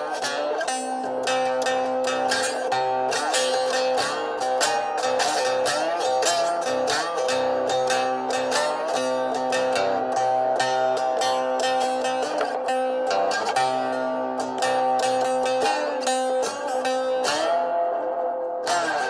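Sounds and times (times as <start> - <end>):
cigar box guitar melody: 0.0 - 19.0.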